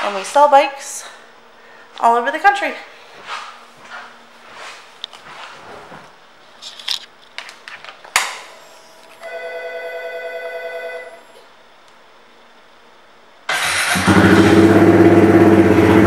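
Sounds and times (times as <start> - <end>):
fuel pump electric buzz: 13.5 - 16.0.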